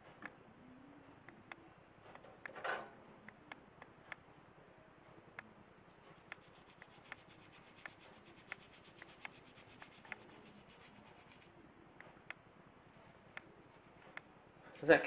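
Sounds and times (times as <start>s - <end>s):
brush scrubbing: 5.8s - 11.5s.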